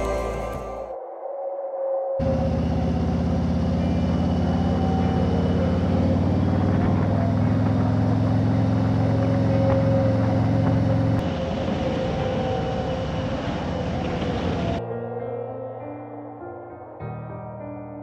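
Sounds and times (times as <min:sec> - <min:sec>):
wind and road noise: 0:02.2 - 0:14.8.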